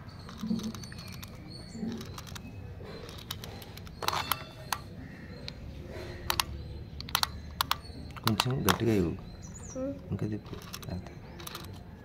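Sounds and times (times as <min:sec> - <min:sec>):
plastic toy clicks and taps: 0:06.3 - 0:08.8.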